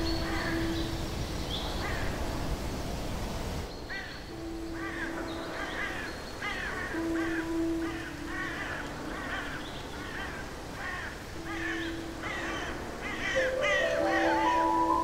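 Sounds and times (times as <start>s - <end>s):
ambient synth music: 0.0s - 1.7s, 4.3s - 15.0s
birds cawing: 3.9s - 15.0s.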